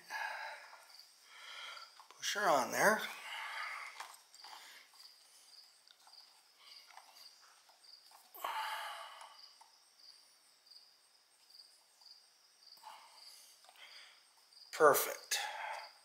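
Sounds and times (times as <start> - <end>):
rubber hose rubbing and handling: 1.9 - 8.4.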